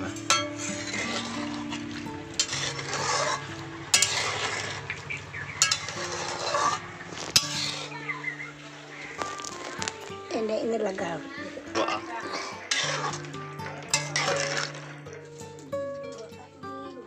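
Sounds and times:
spatula clanking on metal pan: 0.0 - 8.0, 11.7 - 15.2
spatula scraping through gravy: 0.0 - 15.5.

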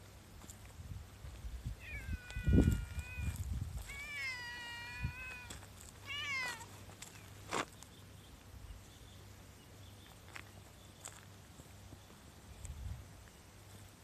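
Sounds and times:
cat meowing: 1.8 - 6.7.

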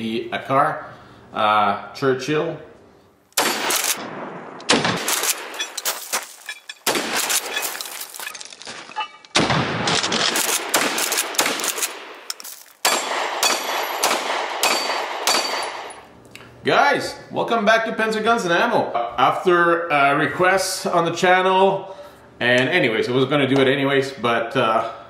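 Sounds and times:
shotgun shots echoing: 3.4 - 5.7, 6.8 - 7.7, 9.3 - 16.0
pistol shots: 3.4 - 7.7, 9.3 - 16.0.

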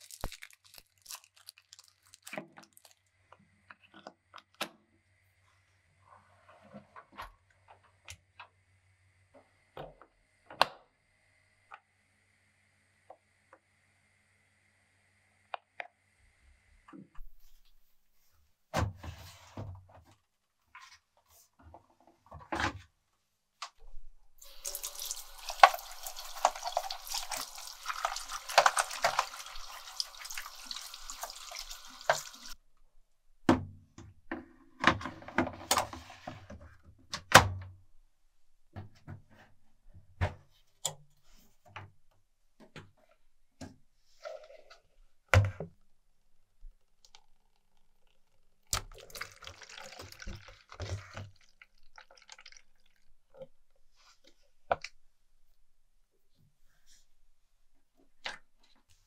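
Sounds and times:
tap water running: 24.4 - 32.6, 48.8 - 53.1
water trickling into container: 24.4 - 32.6, 47.0 - 53.6.

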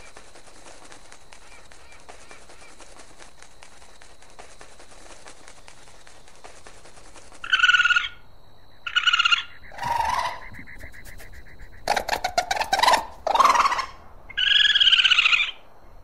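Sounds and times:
faint crackling background: 0.0 - 14.5
high-pitched bird calls: 7.4 - 15.6.

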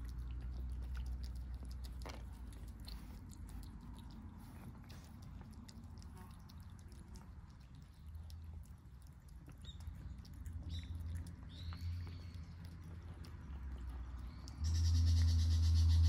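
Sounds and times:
cats chewing and lapping: 0.0 - 15.4
loud low hum: 14.5 - 16.0.

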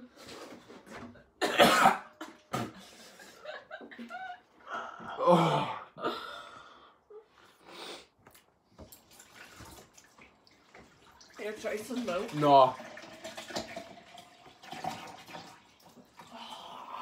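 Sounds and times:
woman laughing and gasping: 2.8 - 6.5.

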